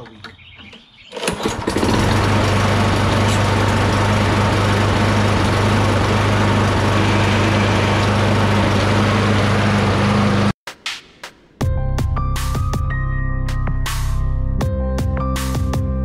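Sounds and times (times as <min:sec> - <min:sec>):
lawn mower engine starting and running: 0:01.1 - 0:10.6.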